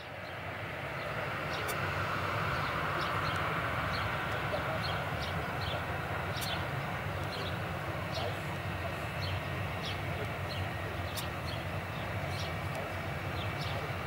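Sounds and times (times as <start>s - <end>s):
jet engines roaring: 0.0s - 14.0s
small birds chirping: 2.5s - 14.0s.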